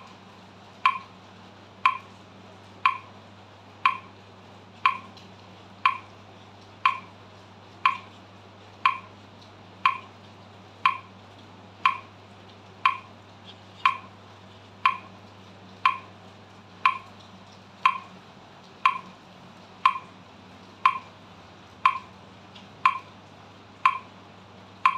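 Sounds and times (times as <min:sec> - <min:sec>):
metronome clicking: 0:00.8 - 0:01.1, 0:01.8 - 0:02.1, 0:02.8 - 0:03.1, 0:03.8 - 0:04.1, 0:04.8 - 0:05.2, 0:05.8 - 0:06.1, 0:06.8 - 0:07.1, 0:07.8 - 0:08.1, 0:08.8 - 0:09.1, 0:09.8 - 0:10.1, 0:10.8 - 0:11.1, 0:11.8 - 0:12.1, 0:12.8 - 0:13.1, 0:13.8 - 0:14.1, 0:14.8 - 0:15.1, 0:15.8 - 0:16.1, 0:16.8 - 0:17.1, 0:17.8 - 0:18.2, 0:18.8 - 0:19.1, 0:19.8 - 0:20.1, 0:20.8 - 0:21.1, 0:21.8 - 0:22.1, 0:22.8 - 0:23.1, 0:23.8 - 0:24.1.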